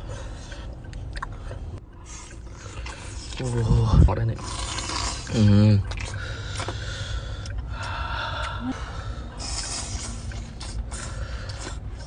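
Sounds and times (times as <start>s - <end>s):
person slurping and chewing: 2.0s - 7.6s, 9.3s - 12.0s
mouth breaths: 5.9s - 12.0s.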